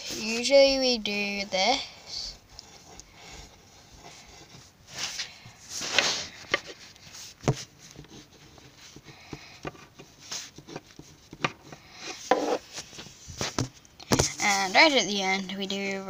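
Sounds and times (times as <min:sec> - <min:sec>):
pen scratching on paper: 0:02.3 - 0:04.7, 0:09.7 - 0:12.7.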